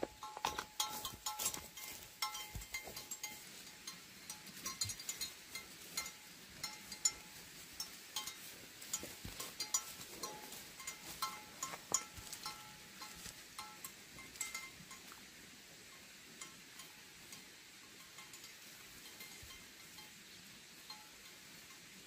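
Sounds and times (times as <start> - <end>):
bell clinking: 0.1 - 15.1.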